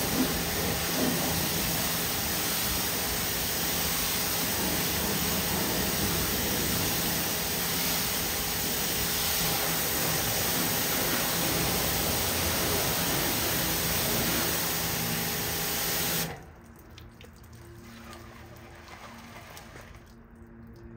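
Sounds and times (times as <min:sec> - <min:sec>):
water hissing from hose spray: 0:00.0 - 0:16.4
water spattering on car paint: 0:00.0 - 0:20.9.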